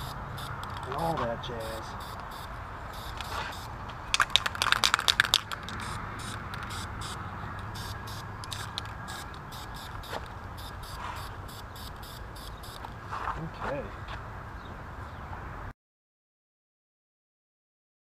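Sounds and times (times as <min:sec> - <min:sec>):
spray paint hissing: 0:00.0 - 0:12.9
spray can rattling clicks: 0:04.1 - 0:09.9.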